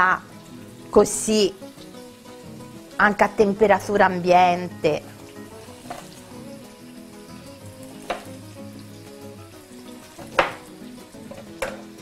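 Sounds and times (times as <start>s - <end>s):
vegetables sizzling in a frying pan: 0.0s - 12.0s
knife knocking on a board: 8.0s - 8.3s, 10.2s - 10.6s, 11.3s - 11.9s.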